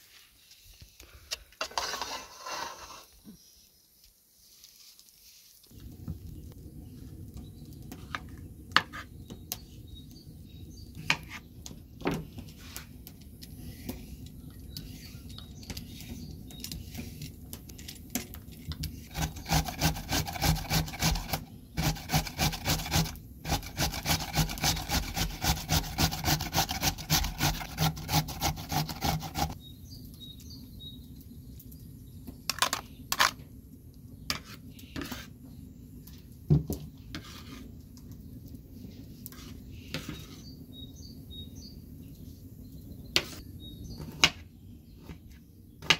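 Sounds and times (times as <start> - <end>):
cucumber rasping on box grater: 19.1 - 29.6.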